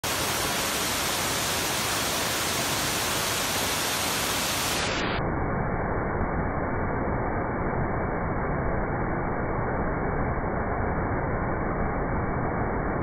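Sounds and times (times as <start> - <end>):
waterfall rushing into pool: 0.0 - 5.2.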